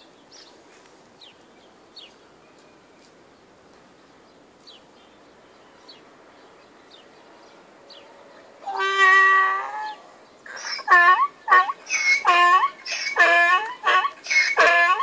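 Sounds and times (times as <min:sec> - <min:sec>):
donkey braying: 0:08.6 - 0:15.0.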